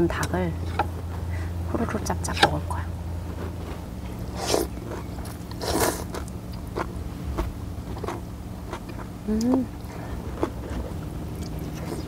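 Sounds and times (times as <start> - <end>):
person chewing food: 3.3 - 12.0
soup slurps: 5.5 - 6.2.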